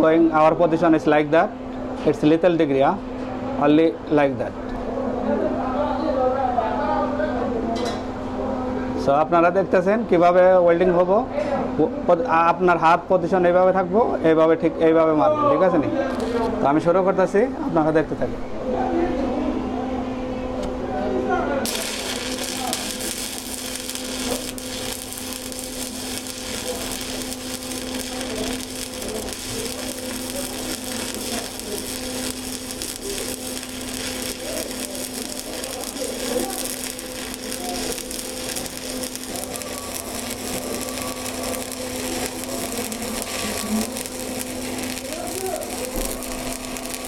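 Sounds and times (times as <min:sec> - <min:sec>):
steady low hum: 0:19.4 - 0:47.0
welding arc crackling and sizzling: 0:21.6 - 0:47.0.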